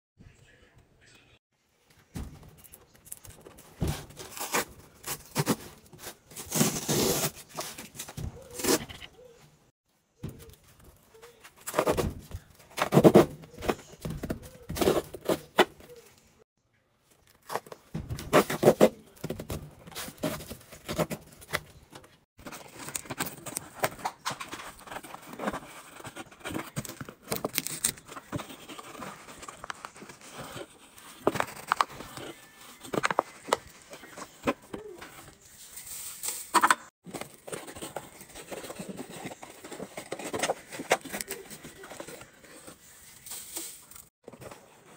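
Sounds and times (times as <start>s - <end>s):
cardboard box rustling: 37.1s - 42.8s.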